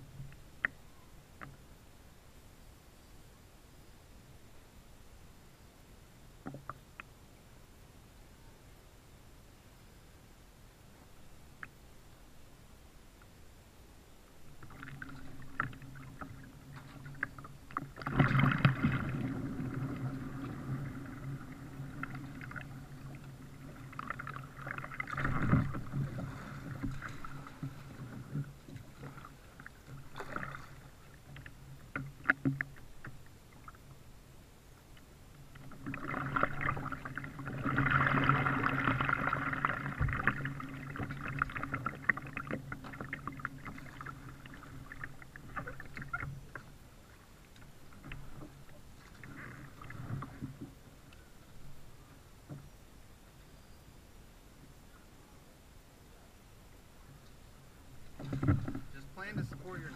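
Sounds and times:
paddle strokes in water: 14.4 - 34.1, 34.8 - 52.9, 57.0 - 59.9
water washing along hull: 14.5 - 34.1, 35.4 - 52.7, 57.0 - 59.9.

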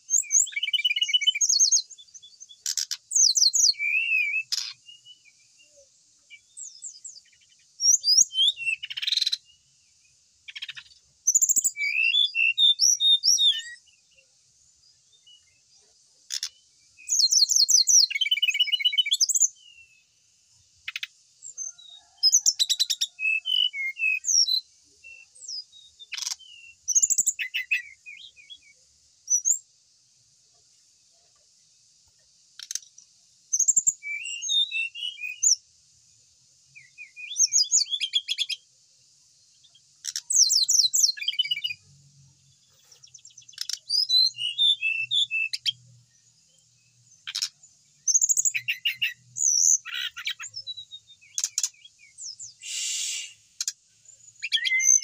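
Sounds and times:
steady high hiss: 0.0 - 12.1, 12.7 - 55.0
bird singing rattling trills: 0.0 - 29.6, 32.4 - 35.6, 36.7 - 38.6, 39.4 - 55.0.

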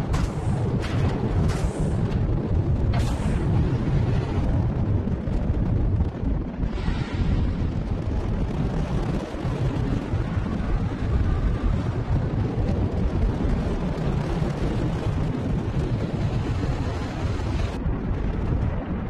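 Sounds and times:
rocket engines deep rumble: 0.0 - 19.0
rocket engine hiss: 3.0 - 3.6, 6.7 - 7.8.

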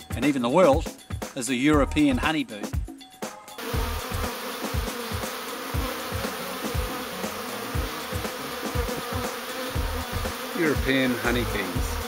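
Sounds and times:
bees buzzing: 3.3 - 12.0.

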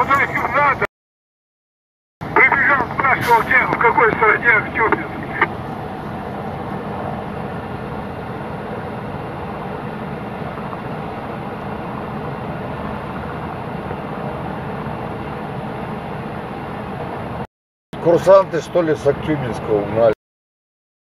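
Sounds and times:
helicopter engines and rotor: 0.0 - 0.8, 2.2 - 17.4.

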